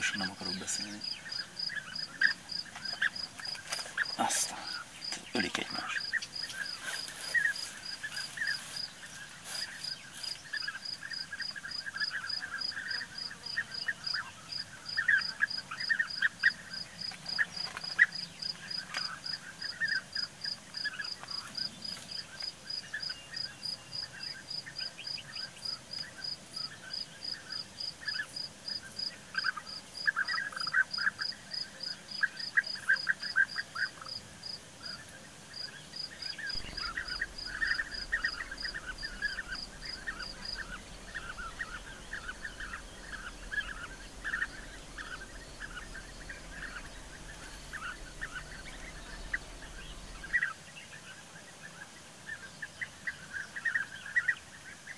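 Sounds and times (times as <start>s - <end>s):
birds squabbling: 0.0s - 10.8s, 36.3s - 50.4s
birds trilled calls: 0.0s - 27.2s, 35.0s - 50.6s.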